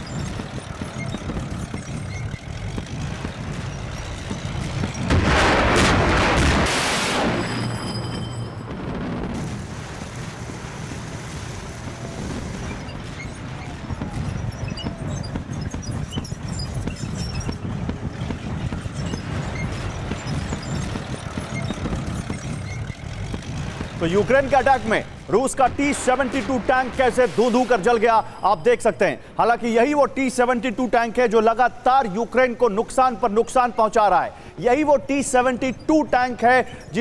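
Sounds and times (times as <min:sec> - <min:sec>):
scattered crackles: 0:00.0 - 0:28.1
rumbling battle noise: 0:00.0 - 0:28.4
explosion blast: 0:04.9 - 0:08.0, 0:08.6 - 0:15.6.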